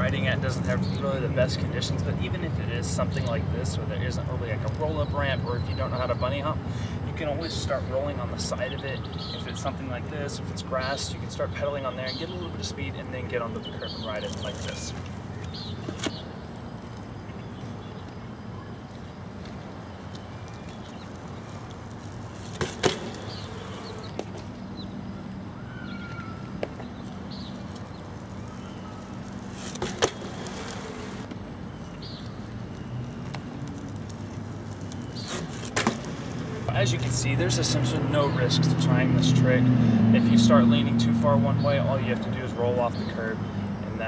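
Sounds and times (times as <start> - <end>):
bmx bike knocks: 22.4 - 24.5, 29.6 - 31.4, 35.2 - 36.5.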